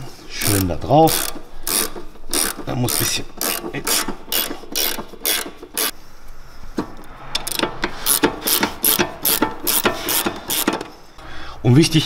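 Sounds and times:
ratchet spanner clicking: 0:00.4 - 0:06.0, 0:07.4 - 0:11.0.

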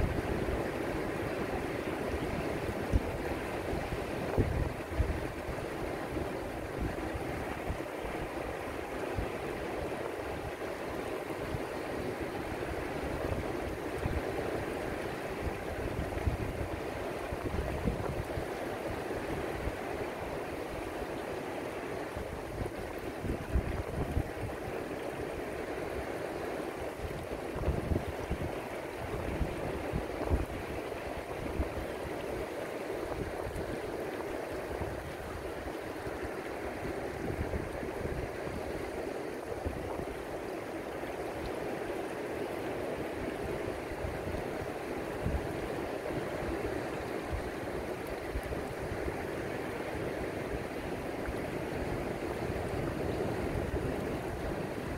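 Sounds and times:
small waves rushing and lapping: 0:00.0 - 0:54.9.

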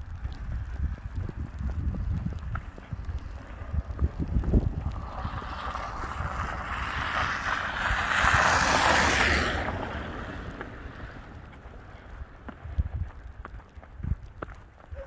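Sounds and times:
wind buffeting microphone: 0:00.0 - 0:15.0
tyres hissing through slush: 0:04.9 - 0:12.1.

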